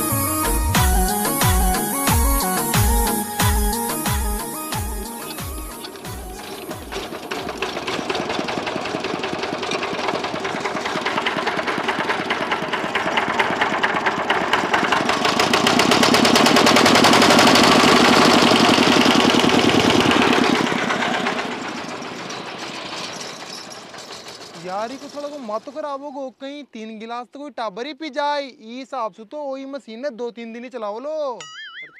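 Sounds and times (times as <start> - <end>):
diesel engine knocking: 5.4 - 25.8.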